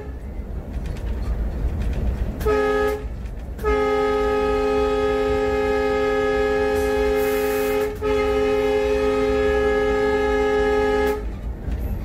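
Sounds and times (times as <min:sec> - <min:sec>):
locomotive air horn blast: 0:00.0 - 0:00.2, 0:02.4 - 0:11.4
locomotive low rumble: 0:00.0 - 0:12.0.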